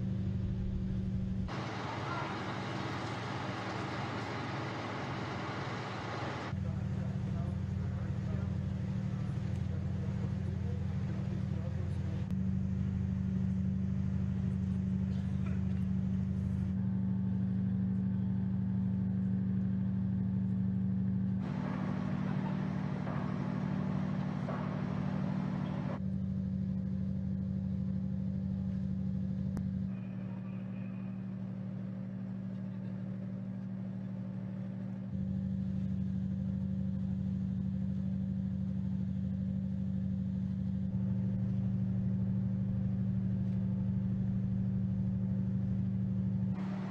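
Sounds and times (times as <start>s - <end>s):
ship engines droning: 1.4s - 26.2s, 29.6s - 38.8s, 45.4s - 46.9s.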